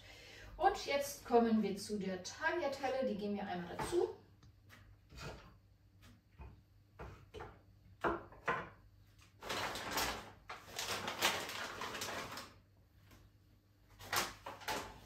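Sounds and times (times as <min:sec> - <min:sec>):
plastic packet crinkling: 0:09.4 - 0:12.6.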